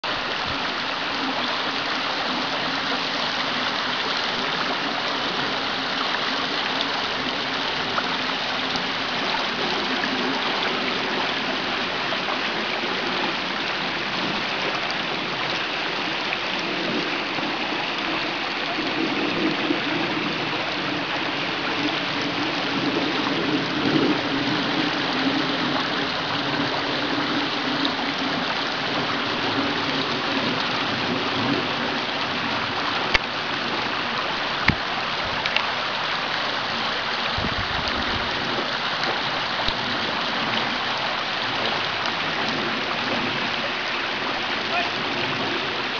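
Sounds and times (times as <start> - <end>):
creek water flowing: 0.0 - 45.9.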